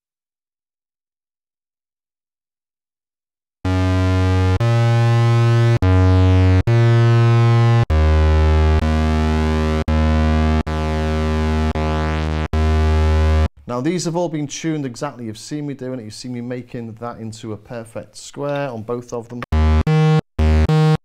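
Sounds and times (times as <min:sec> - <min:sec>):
analog synthesizer low notes: 0:03.7 - 0:13.5, 0:19.4 - 0:21.0.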